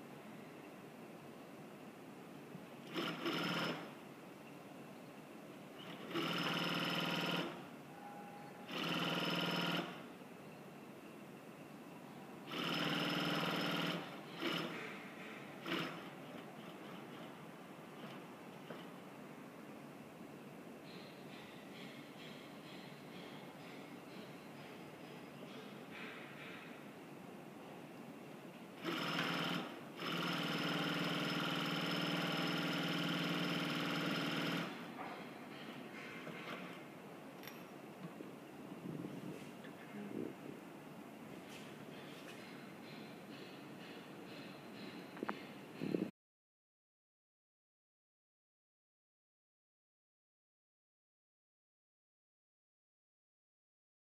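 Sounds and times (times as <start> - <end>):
sewing machine running: 2.9 - 3.9, 5.9 - 7.6, 8.7 - 10.0, 12.5 - 14.8, 15.6 - 17.3, 28.8 - 34.9.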